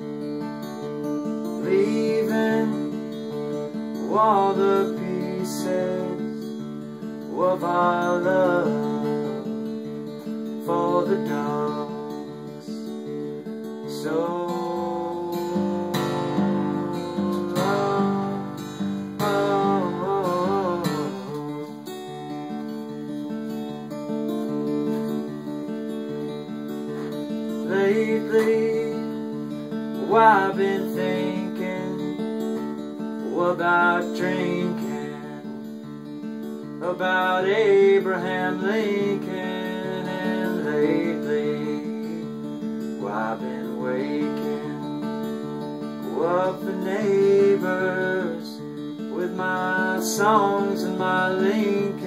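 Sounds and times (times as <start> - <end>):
acoustic guitar chords: 0.0 - 52.0
person singing: 1.6 - 6.6, 10.7 - 12.8, 13.8 - 22.3, 26.2 - 35.6, 36.8 - 45.1, 46.1 - 52.0.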